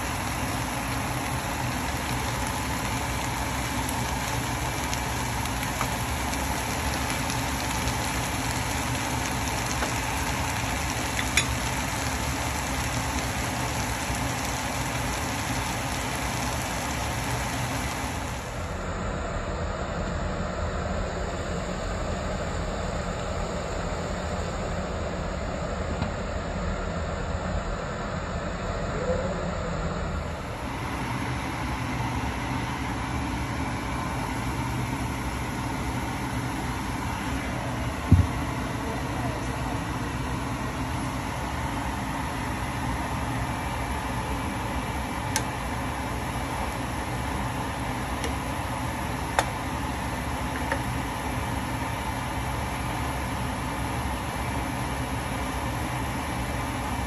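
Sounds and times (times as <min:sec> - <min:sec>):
vegetables sizzling in a pan: 0:00.0 - 0:18.7
vegetables stir-frying: 0:00.0 - 0:18.8, 0:30.5 - 0:57.0.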